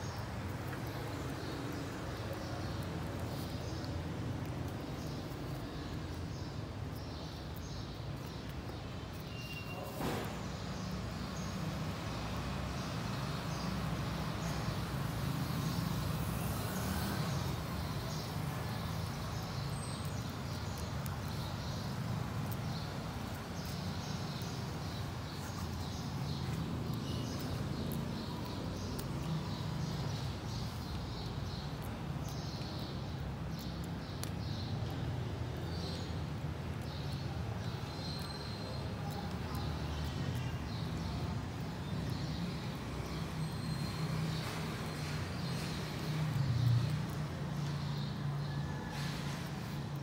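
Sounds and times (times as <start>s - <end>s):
faint high chirps: 9.2s - 10.0s.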